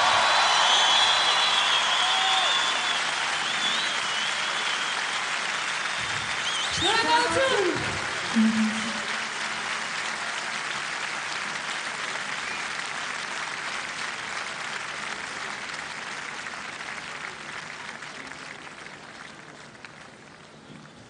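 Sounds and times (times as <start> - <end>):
audience applauding: 0.0 - 21.0.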